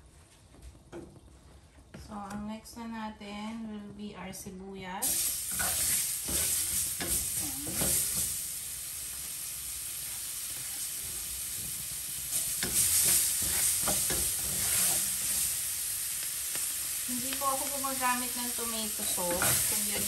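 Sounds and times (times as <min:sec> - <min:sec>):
onions sizzling in oil: 0:05.0 - 0:20.0
utensil scraping pan: 0:12.6 - 0:15.5, 0:19.0 - 0:20.0.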